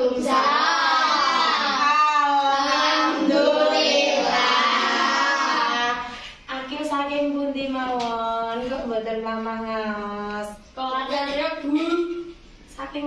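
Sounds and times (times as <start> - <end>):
children singing: 0.0 - 6.1.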